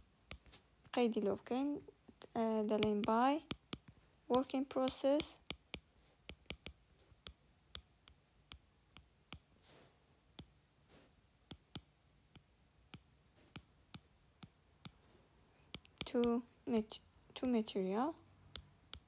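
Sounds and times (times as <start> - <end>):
stylus tapping glass screen: 2.1 - 9.5, 11.5 - 15.0.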